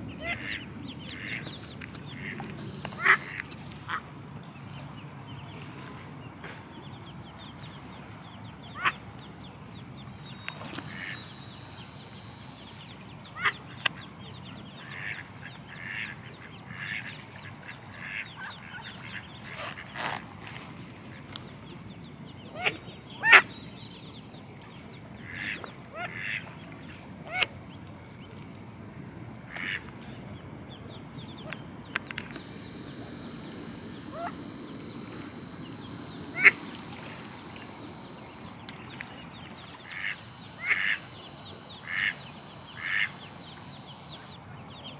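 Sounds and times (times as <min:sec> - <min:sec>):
duck quacking: 0:02.2 - 0:04.0, 0:32.3 - 0:38.6, 0:39.8 - 0:44.3.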